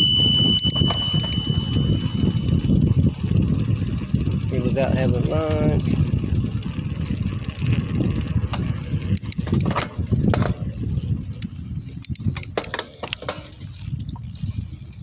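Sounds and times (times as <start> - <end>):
bicycle freewheel ticking: 0.0 - 9.7
bike clicks and rattles: 0.0 - 15.0
wind rumble on microphone: 0.0 - 15.0.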